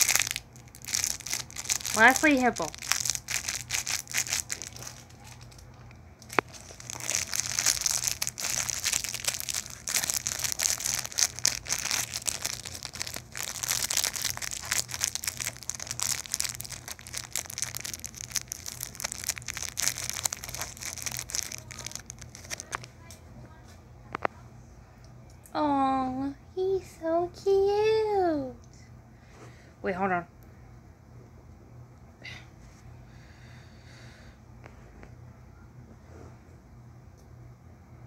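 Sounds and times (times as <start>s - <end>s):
plastic wrapper crinkling: 0.0s - 23.0s.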